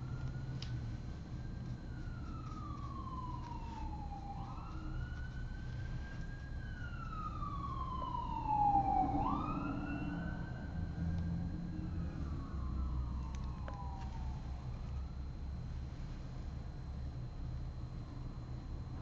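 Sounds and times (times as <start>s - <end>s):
siren wailing: 0.0s - 15.7s.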